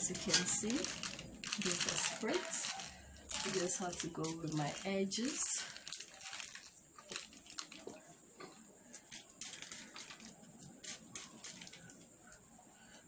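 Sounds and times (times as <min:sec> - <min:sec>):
spray bottle spritzing: 0:00.9 - 0:07.3, 0:09.0 - 0:11.9.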